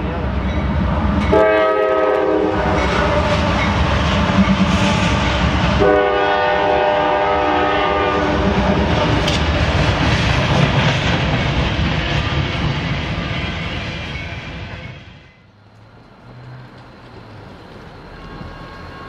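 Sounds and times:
freight train rumbling past: 0.0 - 19.0
locomotive air horn chord: 1.3 - 2.8, 5.8 - 8.4.

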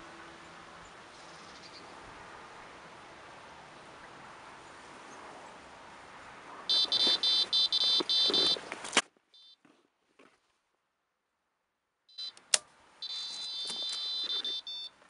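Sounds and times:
bite alarm high beeps: 6.7 - 8.6, 9.4 - 9.6, 12.1 - 12.4, 13.0 - 14.9.

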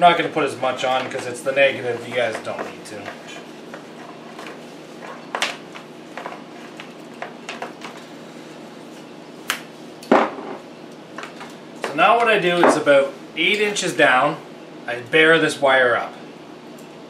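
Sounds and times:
electrical tape rasping: 0.0 - 9.4
low room hum: 0.0 - 17.0.

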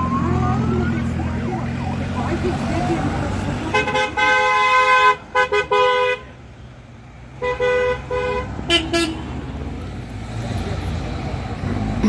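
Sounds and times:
car horns honking: 3.5 - 6.4, 7.3 - 9.4
different car horn: 3.7 - 6.3, 7.4 - 9.3.

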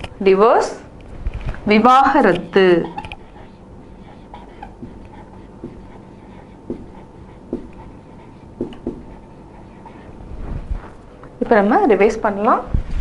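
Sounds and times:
faint room hum: 0.0 - 13.0
marker squeaking on whiteboard: 2.1 - 10.1.

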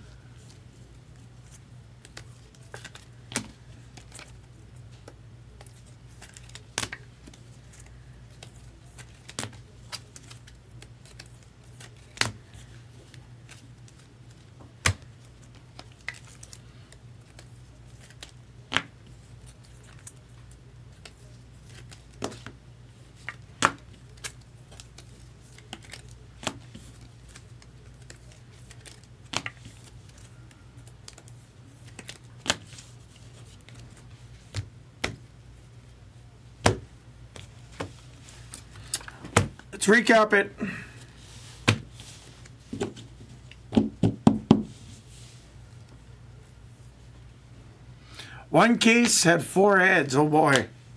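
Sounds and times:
low steady hum: 0.0 - 50.9
cards clicking and tapping on table: 18.1 - 18.9, 43.7 - 44.8.

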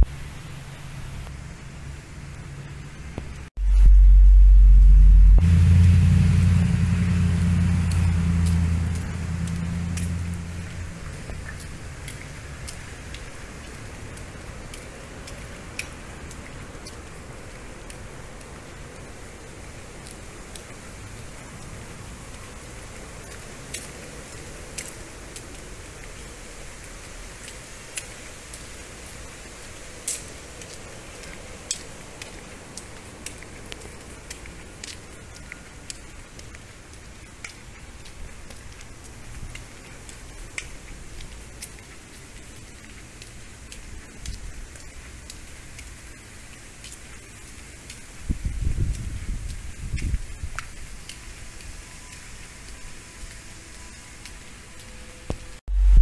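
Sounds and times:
vehicle engine hum: 0.0 - 13.1, 55.1 - 56.0
street ambience hiss: 0.0 - 56.0.

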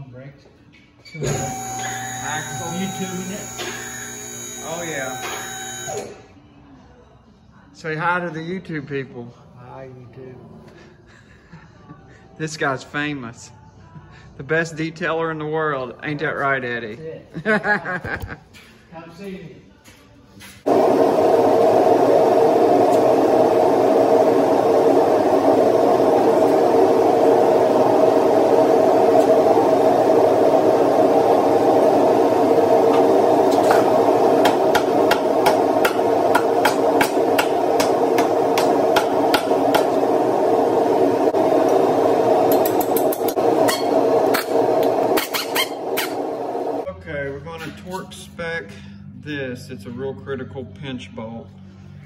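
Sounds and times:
machine drone: 1.2 - 6.2, 20.7 - 46.9.

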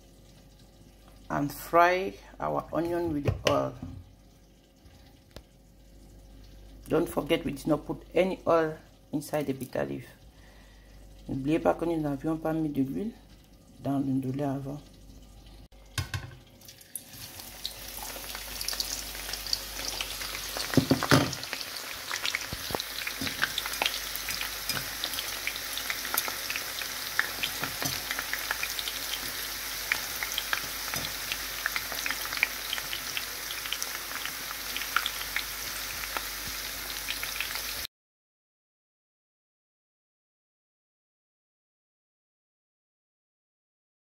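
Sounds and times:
onions sizzling in hot oil: 15.8 - 37.9.

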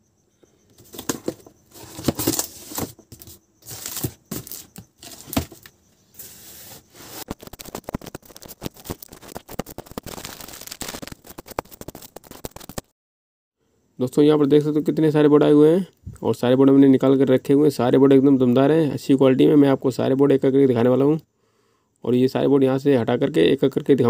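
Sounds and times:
boxes knocking: 0.8 - 5.7
cardboard flaps scraping: 0.8 - 12.8
rapid crackling and clicking: 7.2 - 12.9.

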